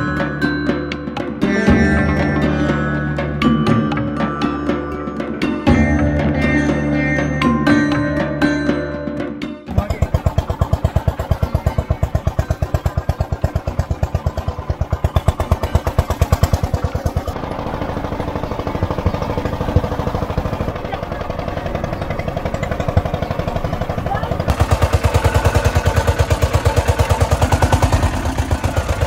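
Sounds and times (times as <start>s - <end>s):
small engine pulsing: 9.7s - 29.0s.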